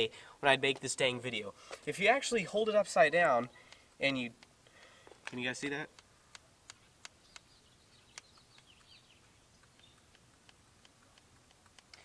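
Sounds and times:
faint bird chirps: 6.9s - 10.2s
soft clicks: 8.1s - 12.0s.

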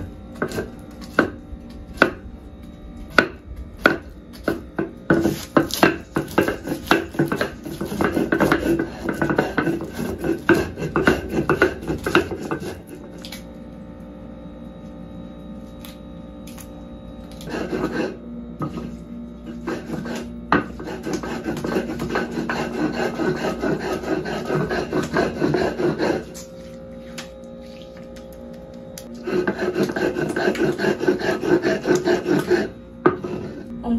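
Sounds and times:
stone scraping over stone: 5.1s - 12.9s, 17.4s - 26.4s, 29.2s - 33.7s.

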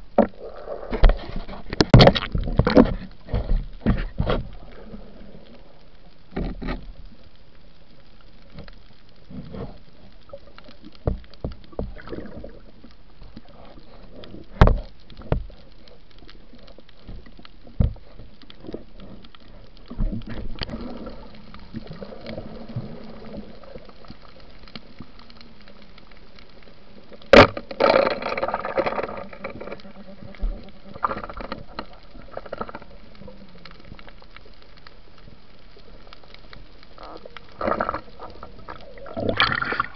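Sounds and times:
rushing bubbling water: 9.9s - 39.9s.

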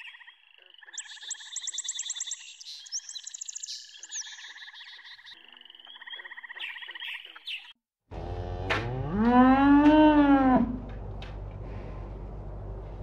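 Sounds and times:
low steady hum: 10.2s - 13.0s.

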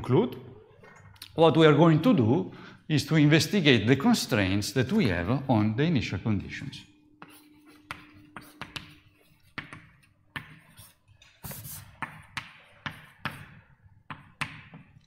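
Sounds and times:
scratchy writing strokes: 7.2s - 14.4s
chalk tapping on board: 7.2s - 15.0s.

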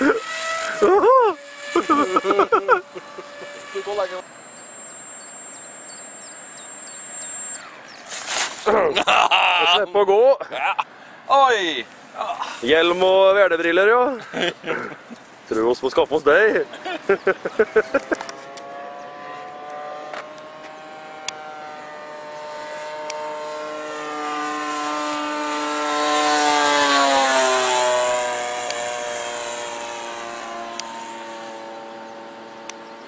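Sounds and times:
model airplane motor passing: 0.0s - 8.6s, 17.6s - 33.0s.

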